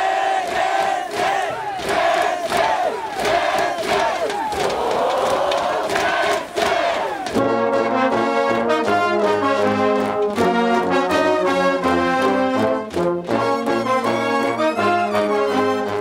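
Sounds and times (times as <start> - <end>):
crowd shouting a chant: 0.0 - 7.4
marching brass band playing: 5.6 - 16.0.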